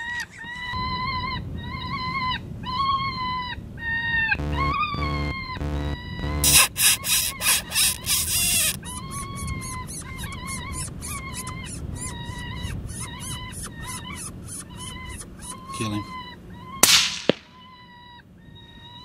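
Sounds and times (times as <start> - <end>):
animal distress call from caller: 0.1 - 16.8
fast clicking pulse: 4.4 - 9.0, 16.8 - 17.5
harsh pulsed squeals: 4.4 - 11.6.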